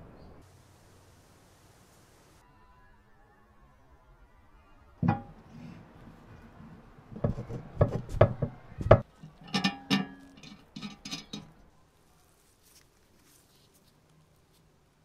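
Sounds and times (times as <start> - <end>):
metal parts knocking and clinking: 9.2 - 11.5.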